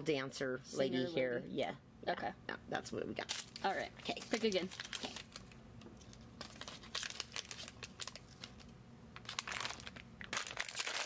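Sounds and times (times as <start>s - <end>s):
plastic packets crinkling: 3.3s - 11.0s.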